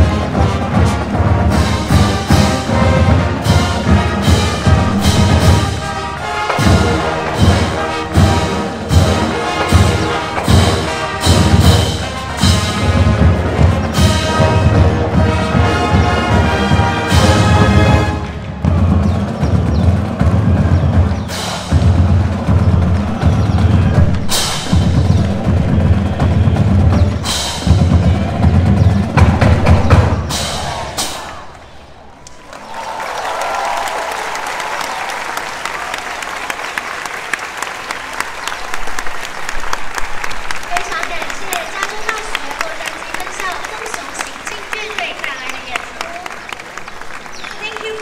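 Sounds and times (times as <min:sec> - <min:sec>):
heavy drum beats: 0:00.0 - 0:31.5
brass section playing: 0:00.0 - 0:31.6.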